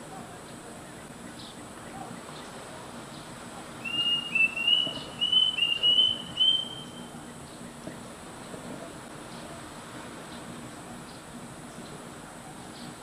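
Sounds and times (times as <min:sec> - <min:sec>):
cuckoo whistling: 0:03.8 - 0:07.1.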